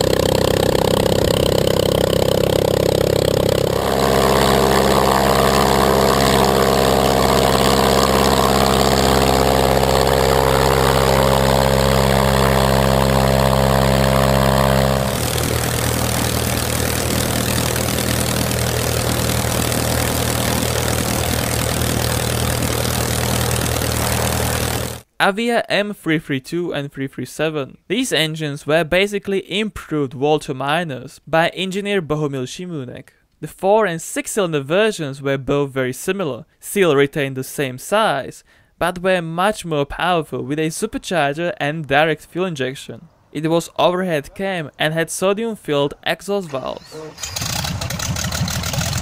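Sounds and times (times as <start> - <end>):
aircraft engines running: 0.0 - 25.0, 46.4 - 49.0.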